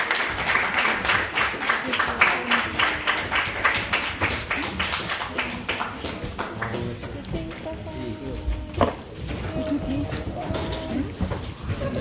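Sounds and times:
crowd applause: 0:00.0 - 0:07.3
faint voices: 0:00.4 - 0:12.0.

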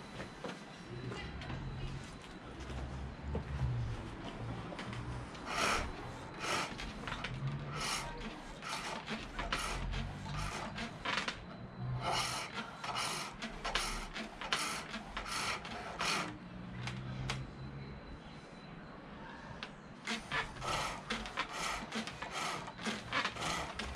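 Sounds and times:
chisel shaving spinning wood: 0:05.4 - 0:11.3, 0:12.0 - 0:16.4, 0:20.1 - 0:23.9.

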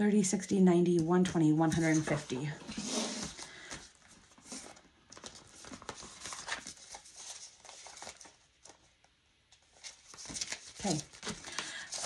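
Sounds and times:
paper rustling and tapping: 0:00.9 - 0:02.5, 0:09.6 - 0:12.0.

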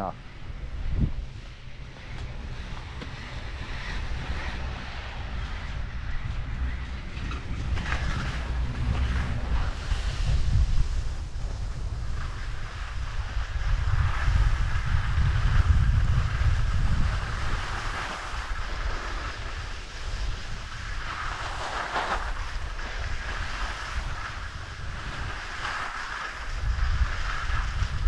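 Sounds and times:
wind buffeting microphone: 0:00.0 - 0:28.0
skis sliding on snow: 0:00.5 - 0:28.0.

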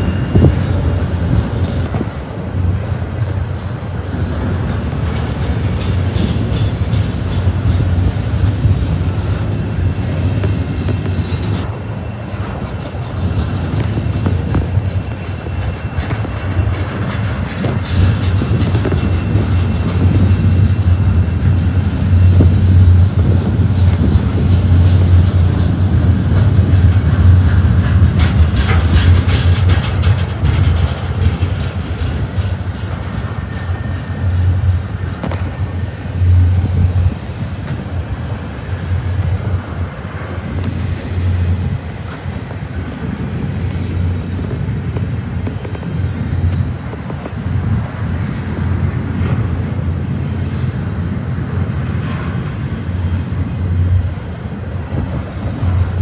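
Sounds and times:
train cars clicking and clanking: 0:00.0 - 0:56.0
train wheels rumbling on rail: 0:00.0 - 0:56.0.

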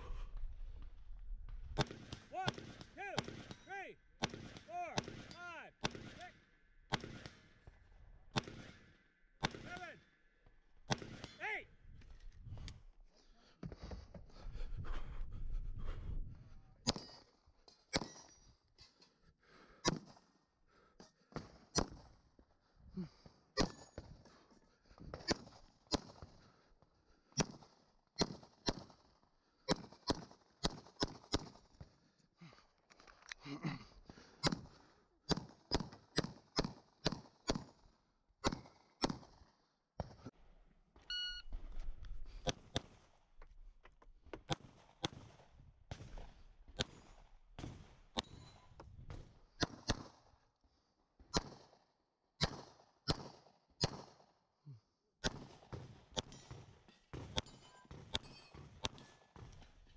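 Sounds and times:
pistol shots: 0:01.8 - 0:07.6, 0:08.3 - 0:09.9, 0:10.9 - 0:11.4, 0:17.9 - 0:18.3, 0:25.3 - 0:26.3, 0:27.4 - 0:29.1, 0:29.7 - 0:31.6, 0:38.4 - 0:39.4, 0:44.5 - 0:50.2, 0:51.4 - 0:51.8, 0:52.4 - 0:54.2, 0:55.2 - 0:59.2.

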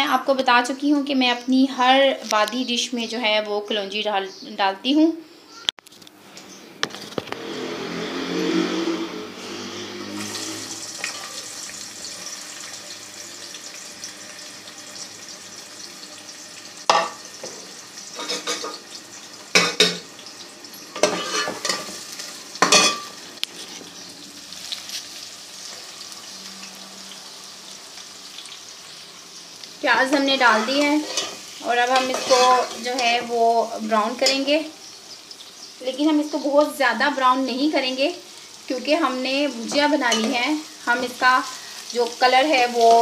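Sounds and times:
onions sizzling in oil: 0:07.4 - 0:43.0
metal spoon scraping a pot: 0:08.6 - 0:11.5, 0:18.1 - 0:18.8, 0:21.0 - 0:21.9, 0:30.4 - 0:33.2.

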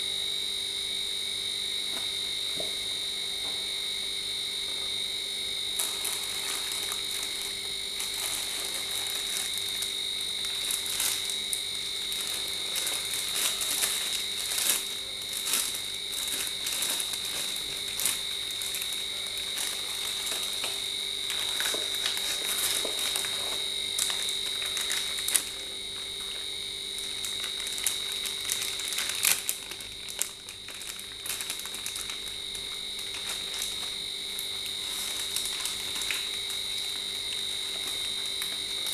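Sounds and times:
high-pitched insect chorus: 0:00.0 - 0:38.9
plastic bag crinkling: 0:05.7 - 0:38.9.

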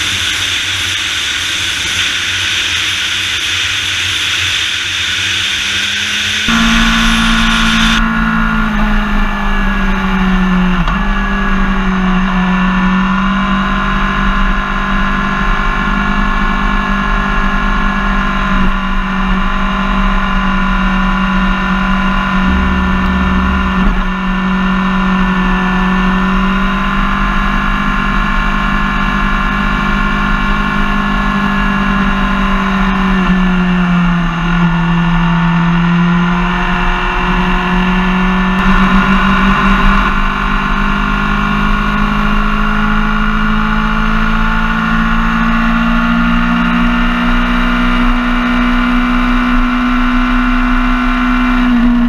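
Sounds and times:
motorcycle engine running: 0:00.0 - 0:29.0.

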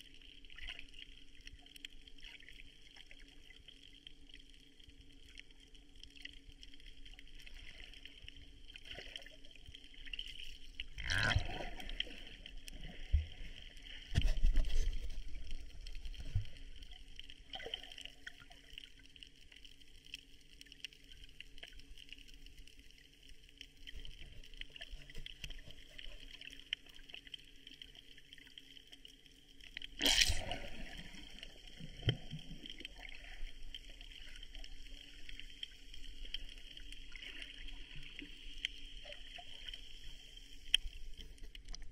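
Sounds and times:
sea water sloshing and gurgling: 0:00.0 - 0:41.9
water splashes: 0:00.0 - 0:41.9.

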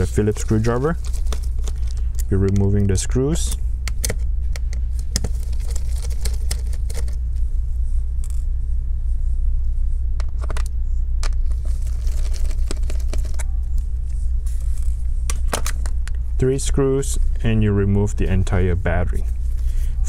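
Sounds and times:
small parts being handled: 0:00.0 - 0:02.8, 0:03.5 - 0:07.2, 0:10.2 - 0:13.6
steady low hum: 0:00.0 - 0:20.0.

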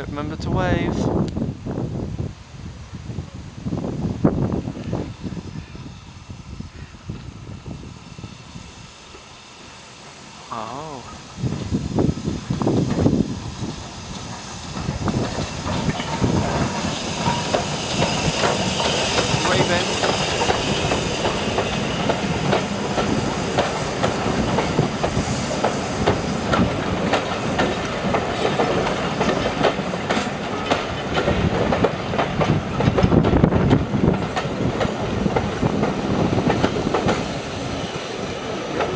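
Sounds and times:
train rumble: 0:00.0 - 0:38.9
train wheels clicking over rail joints: 0:11.1 - 0:38.9.

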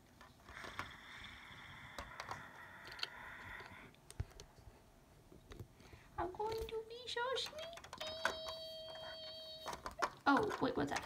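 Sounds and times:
plastic toy bricks clicking: 0:01.8 - 0:04.5, 0:07.3 - 0:11.0
faint high-pitched tone: 0:07.7 - 0:10.0.

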